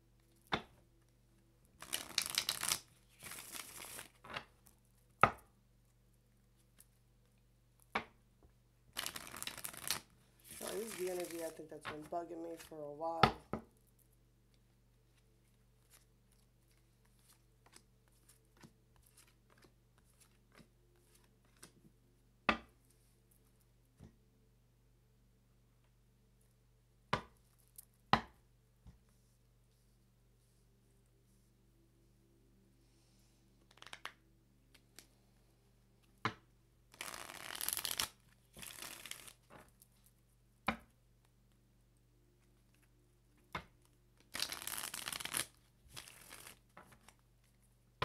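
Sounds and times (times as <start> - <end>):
faint steady hum: 0.0 - 37.4
cards shuffled and dealt: 1.8 - 4.5, 9.0 - 13.4, 15.2 - 21.8, 33.7 - 35.1, 36.3 - 39.7, 44.3 - 47.2.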